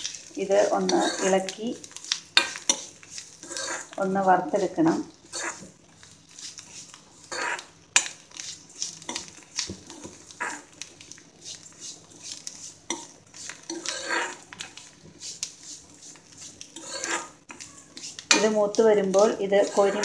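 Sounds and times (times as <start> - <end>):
metal ladle scraping pan: 0.0 - 1.5, 2.4 - 4.0, 6.8 - 7.7, 12.3 - 14.5, 16.7 - 20.0
food frying in oil: 0.0 - 20.0.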